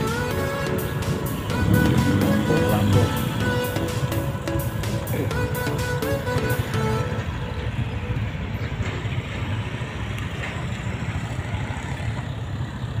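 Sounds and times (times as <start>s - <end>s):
background violin music: 0.0s - 8.4s
cars and motorcycles driving: 0.0s - 13.0s.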